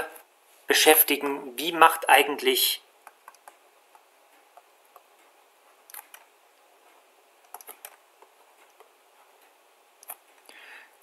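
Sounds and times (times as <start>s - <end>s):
faint hiss: 10.0s - 11.0s.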